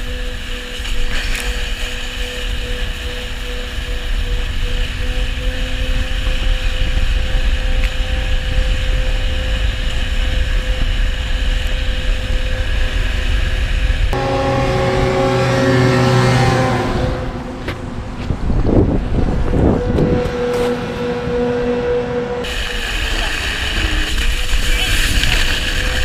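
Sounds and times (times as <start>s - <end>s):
snowmobile engine running: 0.0s - 26.0s
wind rumbling on microphone: 0.0s - 26.0s.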